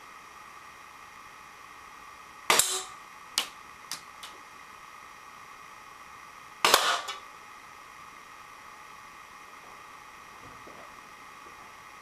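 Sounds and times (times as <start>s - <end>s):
airsoft pistol shots: 2.5s - 3.0s, 6.6s - 7.2s.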